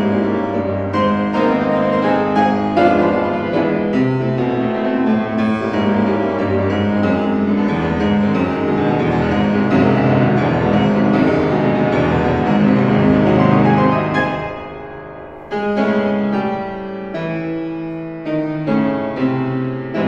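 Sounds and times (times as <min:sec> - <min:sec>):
slow classical piano piece: 0:00.0 - 0:20.0.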